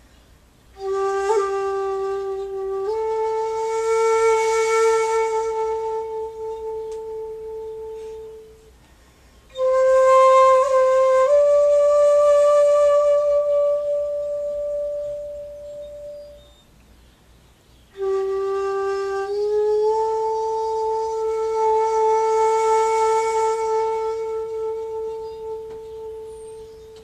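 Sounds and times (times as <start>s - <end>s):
bamboo flute long notes: 0.7s - 8.8s, 9.4s - 16.7s, 17.9s - 27.0s.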